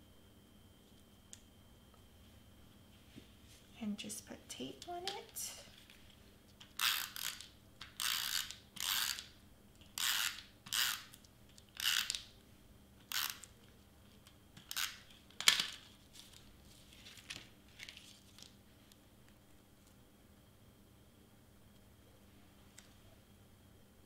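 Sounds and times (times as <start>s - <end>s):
paper handling: 15.4s - 18.6s.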